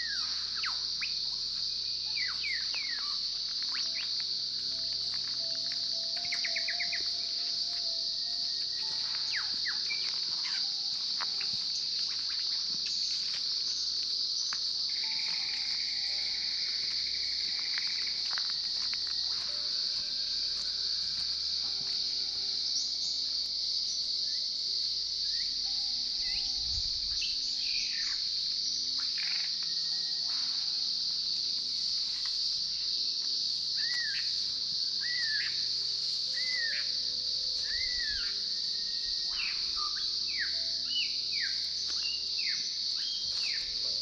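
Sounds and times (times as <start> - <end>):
high-pitched insect drone: 0.0 - 44.0
birds calling: 6.1 - 7.5.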